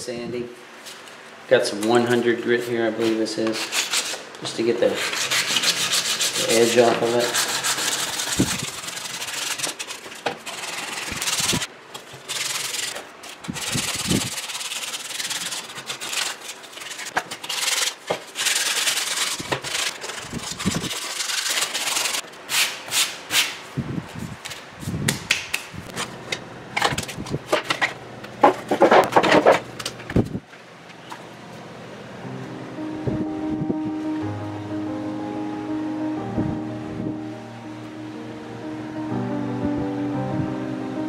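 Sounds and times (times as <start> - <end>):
sandpaper rubbing wood: 3.0 - 4.2, 4.8 - 23.1.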